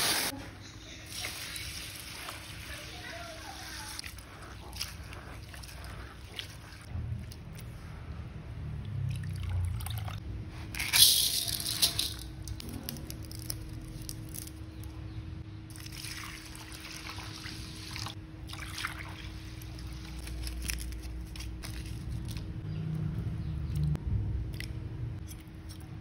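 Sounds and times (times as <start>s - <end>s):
water pouring and splashing: 15.7s - 20.2s.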